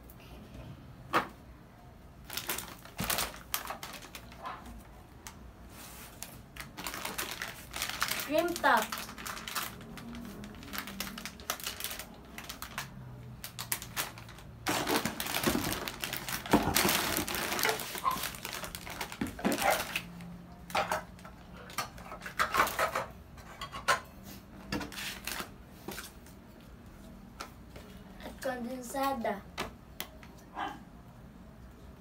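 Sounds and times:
plastic packets crinkling: 0:02.2 - 0:05.4, 0:06.0 - 0:21.8, 0:24.9 - 0:26.2
items clicking and knocking: 0:13.8 - 0:24.0.

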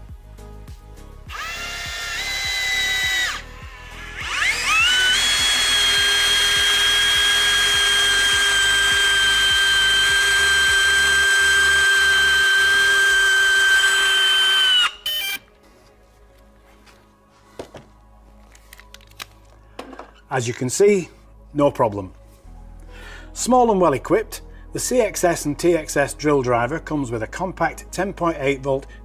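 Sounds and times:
cordless drill motor whining: 0:01.3 - 0:15.5.

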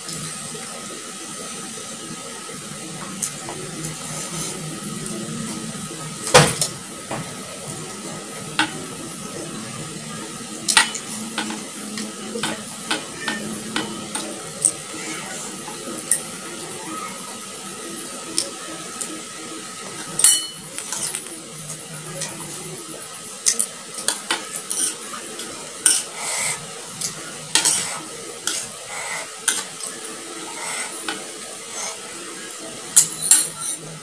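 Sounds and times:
spoon scraping a bowl: 0:27.6 - 0:29.7.

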